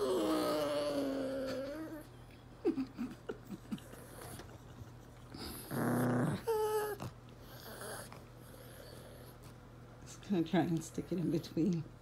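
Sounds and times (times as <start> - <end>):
dog growling: 0.0 - 2.1, 5.3 - 9.5
small dog whining: 0.0 - 2.2, 5.5 - 9.3.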